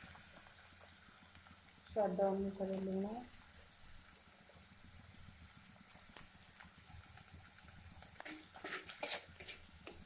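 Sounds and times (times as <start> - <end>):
faint frying hiss: 0.0 - 10.0
spatula scraping a pan: 8.2 - 10.0.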